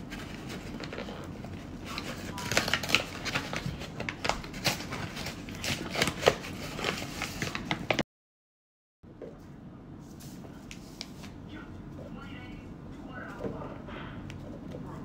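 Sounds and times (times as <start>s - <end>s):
paper bag crinkling and rustling: 0.0s - 8.0s.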